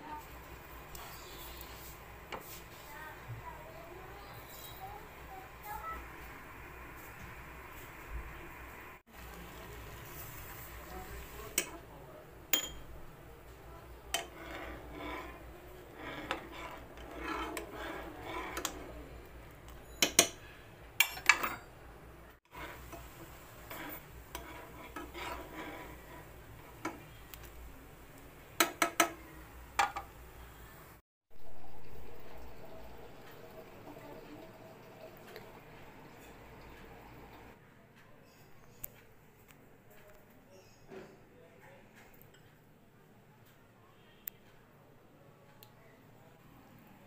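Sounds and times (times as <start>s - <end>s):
tea boiling: 4.9s - 20.4s, 22.4s - 29.2s, 31.3s - 37.6s
spoon scraping and clinking on pan: 12.5s - 13.0s, 14.1s - 21.8s, 22.5s - 27.4s.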